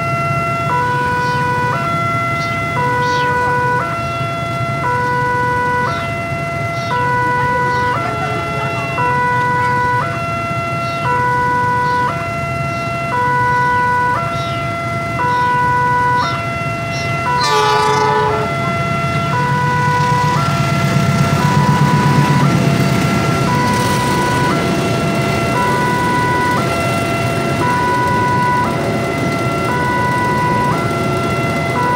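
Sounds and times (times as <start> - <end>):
idling engines hum: 0.0 - 31.9
two-tone crossing alarm: 0.0 - 31.9
approaching train rumble: 6.0 - 10.8, 17.2 - 31.9
train horn blast: 17.3 - 19.7.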